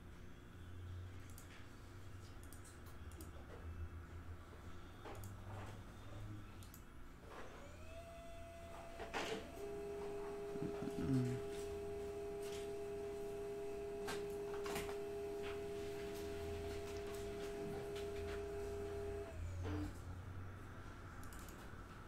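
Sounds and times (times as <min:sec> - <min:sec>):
low background hum: 0:00.0 - 0:22.0
steady single-pitched hum: 0:07.6 - 0:20.0.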